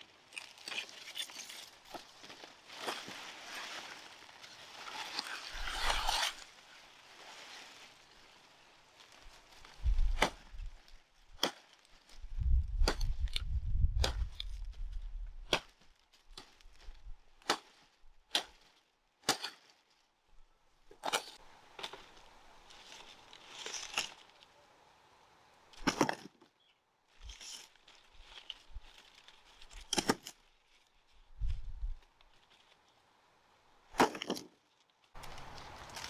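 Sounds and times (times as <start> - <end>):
cane leaves rustling: 0.0 - 36.0
machete chopping sugarcane: 10.1 - 10.5, 11.4 - 11.7, 14.0 - 14.3, 15.4 - 15.8, 17.4 - 19.6, 29.9 - 30.4, 34.0 - 34.5.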